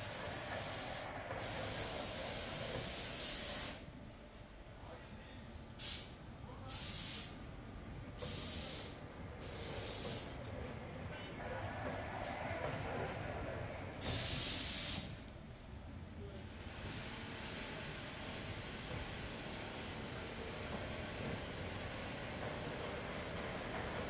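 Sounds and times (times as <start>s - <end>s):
fabric spreading machine hissing: 0.0s - 3.9s, 8.2s - 10.4s, 14.0s - 15.2s.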